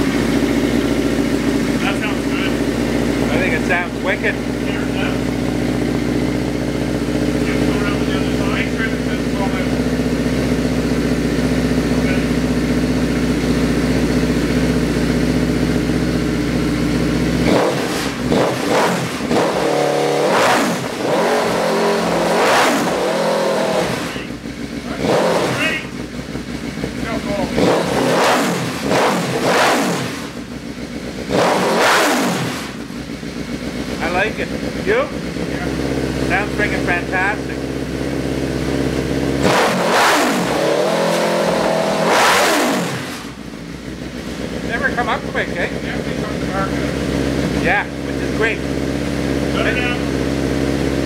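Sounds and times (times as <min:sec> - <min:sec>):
motorcycle engine revving: 0:00.0 - 0:51.0.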